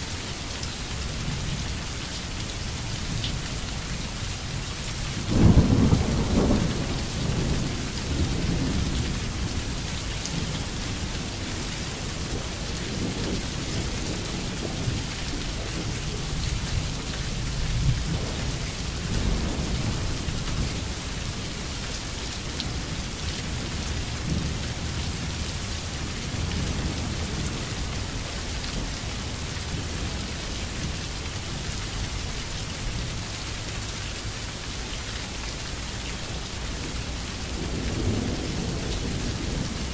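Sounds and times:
steady rain hissing: 0.0 - 39.9
thunder rumbling: 5.2 - 21.8, 36.8 - 39.9.

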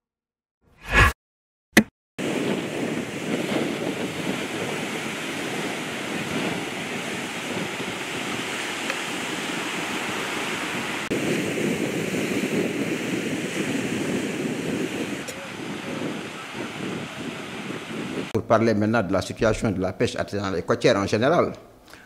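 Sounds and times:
sea surf washing onto beach: 2.2 - 18.4
wind buffeting microphone: 2.2 - 18.4.

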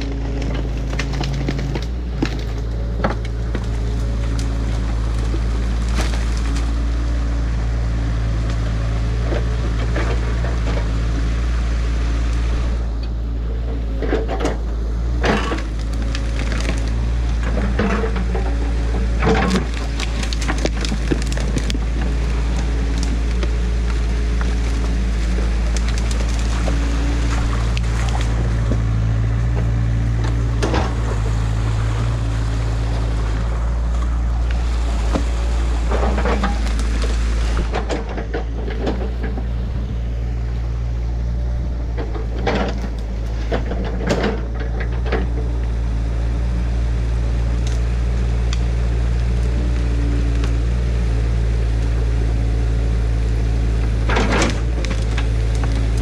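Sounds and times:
sharp knocks and cracks: 0.0 - 7.0, 15.2 - 31.5, 53.8 - 56.0
diesel engine running: 0.0 - 56.0
water rushing and splashing: 15.6 - 39.6.

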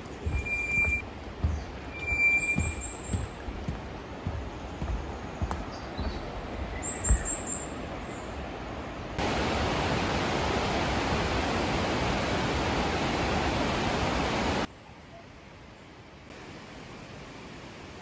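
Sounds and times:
mountain stream rushing: 0.0 - 14.7
very high chirps: 0.3 - 1.0, 1.9 - 3.4, 6.8 - 7.7.

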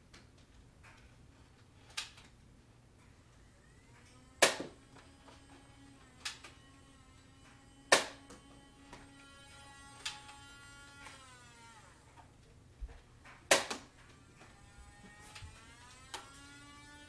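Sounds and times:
foam dart blasters firing: 3.5 - 12.2, 13.2 - 17.0.

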